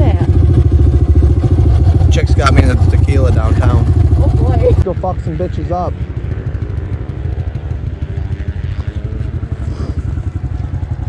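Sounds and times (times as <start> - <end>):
small engine running at low revs: 0.0 - 11.0.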